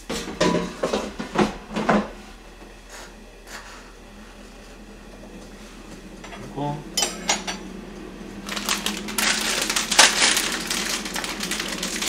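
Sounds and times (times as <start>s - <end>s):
dishes and utensils clattering: 0.1s - 2.1s, 7.0s - 7.6s.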